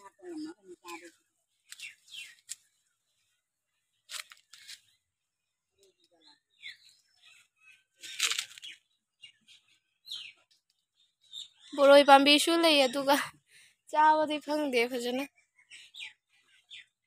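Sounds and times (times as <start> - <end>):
leaves and twigs rustling: 0.8 - 5.0, 8.0 - 8.8
falling bird chirps: 0.9 - 2.7, 4.0 - 5.1, 6.6 - 10.6.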